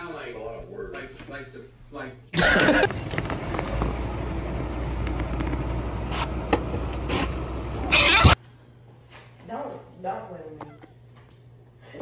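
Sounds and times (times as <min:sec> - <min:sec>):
distant road traffic hum: 0:02.8 - 0:08.4.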